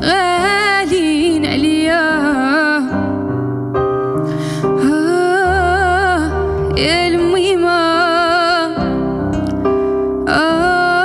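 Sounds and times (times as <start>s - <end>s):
woman singing with vibrato: 0.0s - 3.0s, 4.6s - 9.1s, 10.2s - 11.0s
acoustic guitar: 8.7s - 10.7s.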